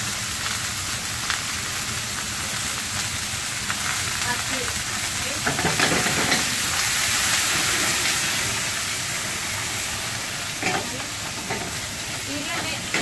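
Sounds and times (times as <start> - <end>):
fish sizzling in frying pan: 0.0 - 13.0.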